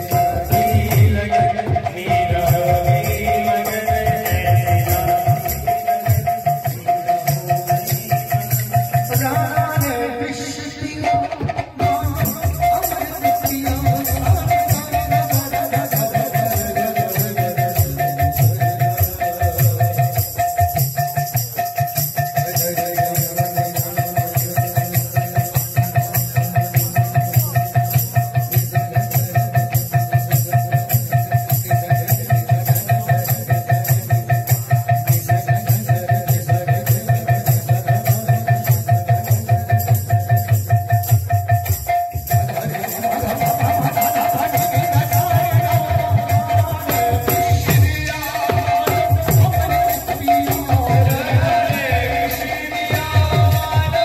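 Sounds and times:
drum beat: 0:10.8 - 0:54.0.

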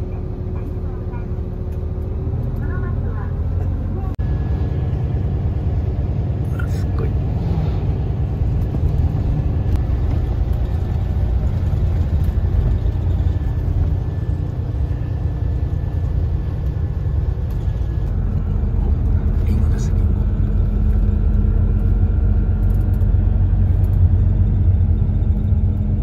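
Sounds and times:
bus engine and tyre rumble: 0:00.0 - 0:26.0.

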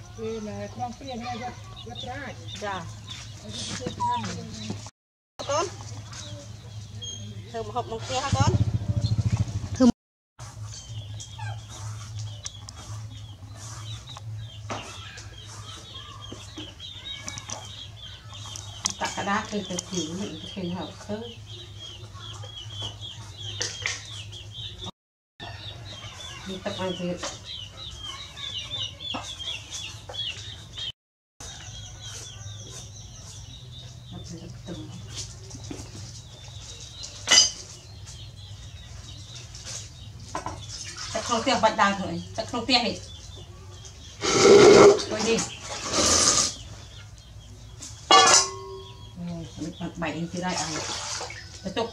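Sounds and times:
birds chirping: 0:00.0 - 0:51.9
chickens clucking: 0:10.4 - 0:51.9
kitchen things knocking and rustling: 0:37.0 - 0:38.2, 0:39.8 - 0:40.8, 0:47.9 - 0:49.0.

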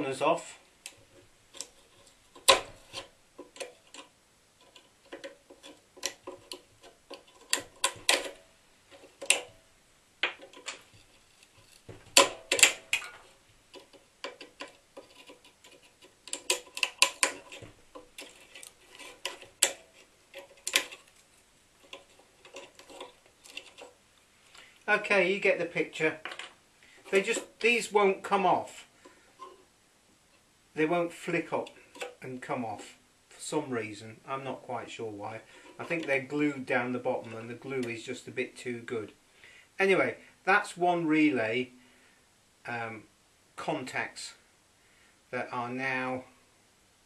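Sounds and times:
screwdriver scraping plastic: 0:00.8 - 0:09.6, 0:10.4 - 0:24.0.

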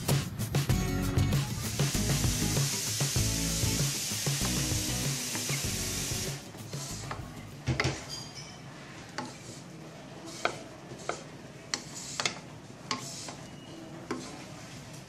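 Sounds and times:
wooden spatula scraping wok: 0:08.0 - 0:15.0.

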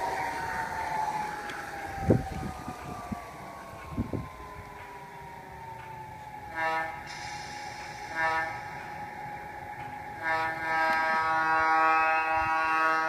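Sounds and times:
model locomotive horn: 0:06.5 - 0:07.2, 0:08.0 - 0:09.1, 0:10.0 - 0:13.0.

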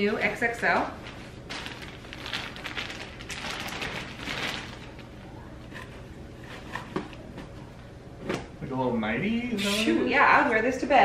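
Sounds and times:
plastic bag crinkling: 0:01.0 - 0:05.2.

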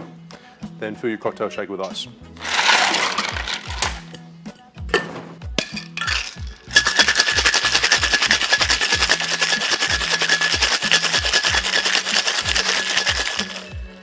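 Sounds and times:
ice rattling in cocktail shaker: 0:02.4 - 0:04.1, 0:05.6 - 0:13.8.

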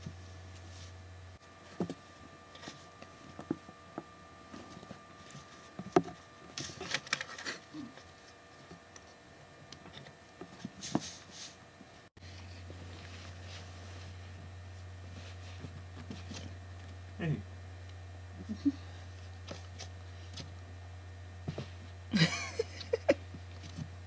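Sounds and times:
kittens tapping and rustling: 0:19.1 - 0:20.6, 0:23.2 - 0:24.0.

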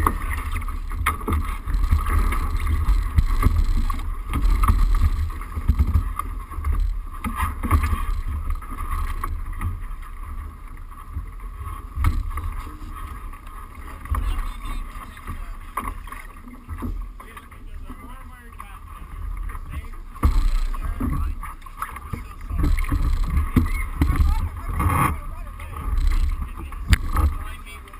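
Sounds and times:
steady high hum: 0:00.0 - 0:27.9
scattered knocks: 0:20.0 - 0:27.4
wind buffeting microphone: 0:22.3 - 0:27.6.

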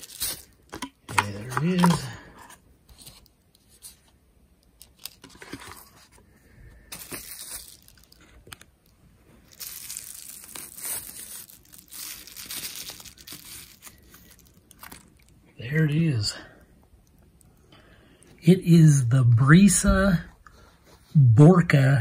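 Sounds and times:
foam wrap rustling: 0:00.0 - 0:02.2, 0:06.8 - 0:08.6, 0:09.4 - 0:15.3.

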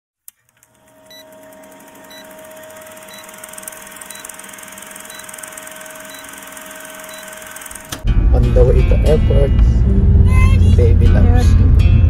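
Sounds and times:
short high electronic beep: 0:06.0 - 0:06.4.

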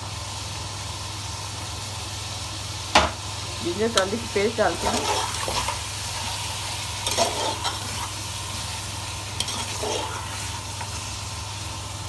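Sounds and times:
food sizzling in hot oil: 0:00.0 - 0:12.0
spoon scraping a pot: 0:04.8 - 0:05.8, 0:07.0 - 0:08.1, 0:09.4 - 0:10.6.

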